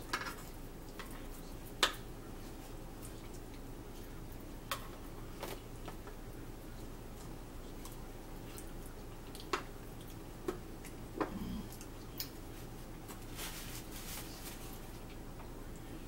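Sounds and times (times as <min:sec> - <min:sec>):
paper napkin rustling: 0:12.6 - 0:15.0.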